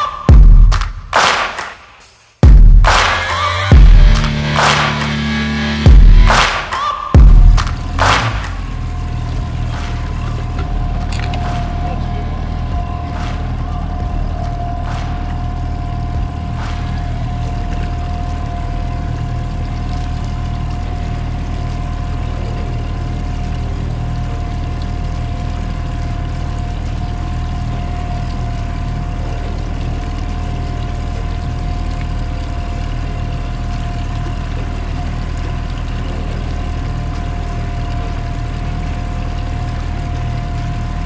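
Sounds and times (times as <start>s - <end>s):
boat motor running: 0.0s - 1.2s, 2.4s - 41.0s
high whine: 0.0s - 41.0s.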